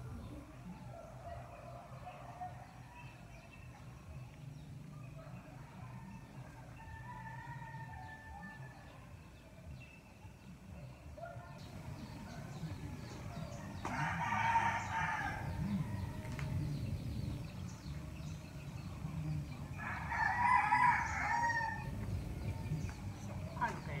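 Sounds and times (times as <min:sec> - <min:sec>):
rooster crowing: 0:12.3 - 0:16.5, 0:19.8 - 0:21.9.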